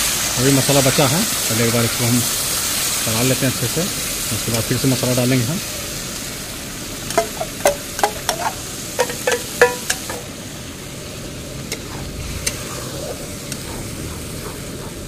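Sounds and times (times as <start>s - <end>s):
masala sizzling in oil: 0.0s - 14.8s
metal spatula scraping cookware: 7.1s - 10.3s.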